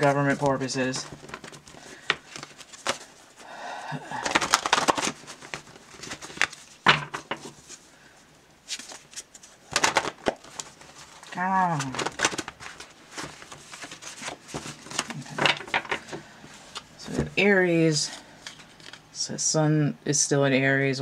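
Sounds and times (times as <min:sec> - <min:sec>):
paper rustling and sliding: 0:00.0 - 0:03.4, 0:04.2 - 0:07.9, 0:08.6 - 0:17.4.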